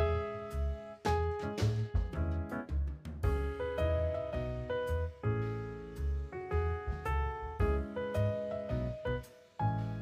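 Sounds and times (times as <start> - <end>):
jazzy piano background music: 0.0 - 10.0.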